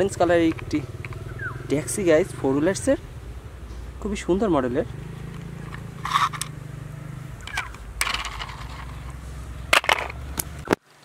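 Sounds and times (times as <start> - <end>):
plastic toy scraping and rustling: 5.2 - 6.6, 7.4 - 10.2
plastic toy clattering: 5.6 - 6.5, 7.4 - 10.2.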